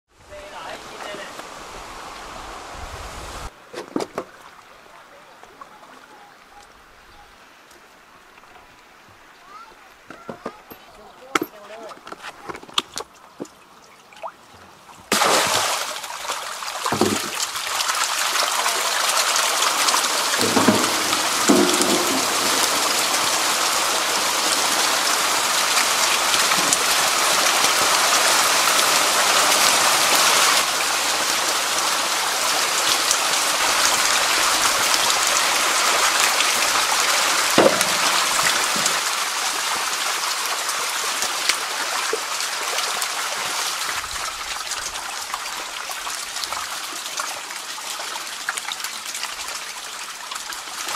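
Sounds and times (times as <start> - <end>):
eels splashing in water: 15.1 - 24.4
dull knocks: 20.4 - 23.0, 37.6 - 38.8.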